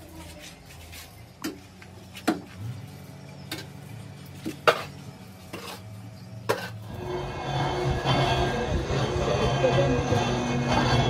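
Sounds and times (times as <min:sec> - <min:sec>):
shovel scraping sand on concrete: 0:04.4 - 0:07.0.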